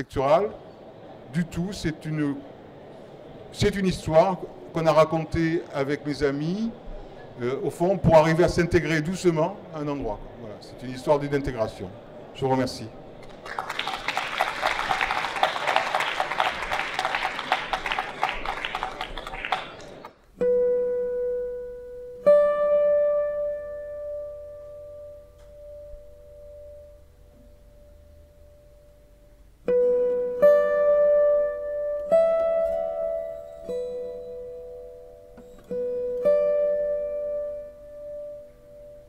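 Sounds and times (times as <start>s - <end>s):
audience applauding: 13.2s - 20.1s
slow plucked guitar notes: 20.2s - 39.0s.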